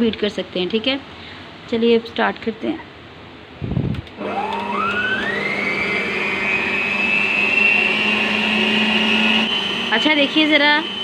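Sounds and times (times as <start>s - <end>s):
electric mixer motor whine: 4.2s - 11.0s.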